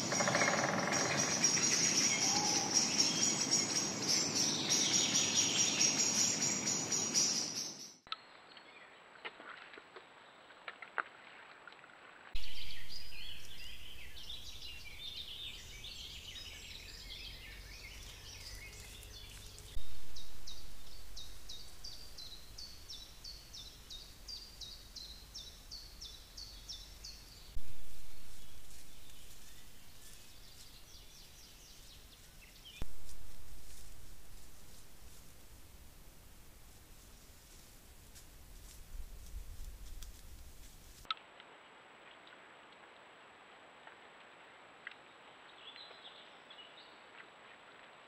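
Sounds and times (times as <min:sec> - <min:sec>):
birdsong: 0:00.0 - 0:09.4, 0:12.4 - 0:41.1.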